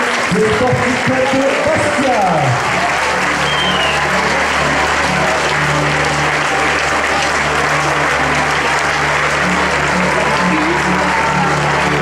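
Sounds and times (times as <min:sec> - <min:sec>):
crowd applauding: 0:00.0 - 0:12.0
music playing: 0:00.0 - 0:12.0.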